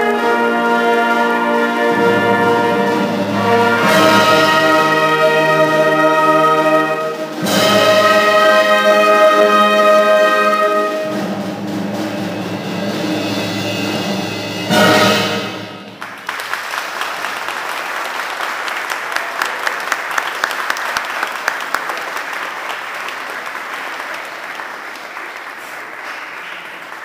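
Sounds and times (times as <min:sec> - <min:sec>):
brass band chord: 0:00.0 - 0:16.1
crowd clapping: 0:15.9 - 0:27.0.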